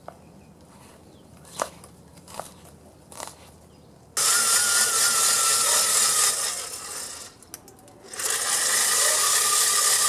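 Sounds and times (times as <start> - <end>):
electric blower whining: 4.2 - 7.4, 8.1 - 10.0.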